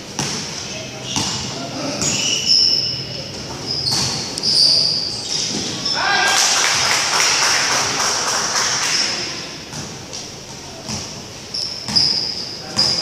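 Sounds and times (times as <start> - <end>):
echoing gym background noise: 0.0 - 13.0
sneaker squeaks on court: 1.0 - 6.0, 10.9 - 13.0.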